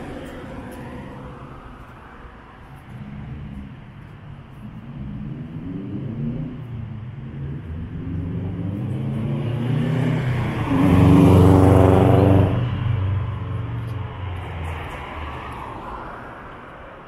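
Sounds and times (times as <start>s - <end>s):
vehicle engine passing by: 2.8s - 16.0s.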